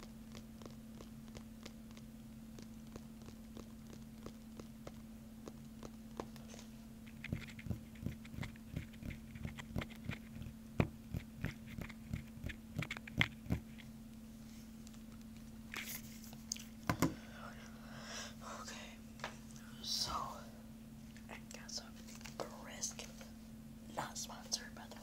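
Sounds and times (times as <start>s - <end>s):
wet mouth clicks: 0.0s - 6.4s
steady low hum: 0.0s - 25.0s.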